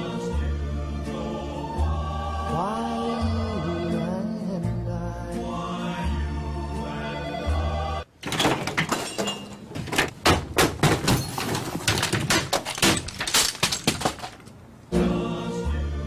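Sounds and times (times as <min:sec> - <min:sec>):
office equipment crashing: 0:08.2 - 0:14.6
things breaking: 0:08.2 - 0:14.6.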